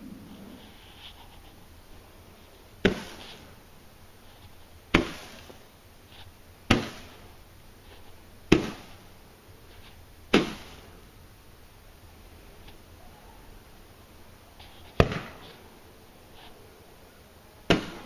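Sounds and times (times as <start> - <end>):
roman candle pops: 17.7 - 18.0.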